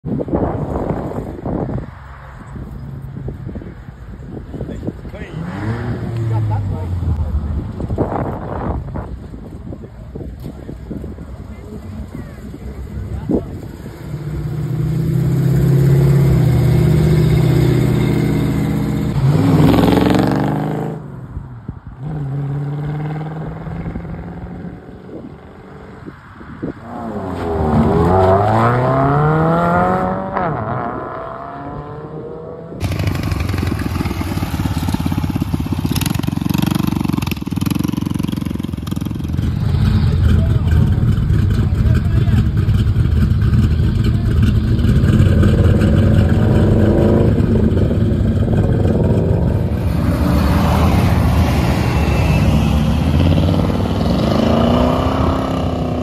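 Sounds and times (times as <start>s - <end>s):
car engine accelerating: 11.0s - 21.2s, 26.8s - 56.0s.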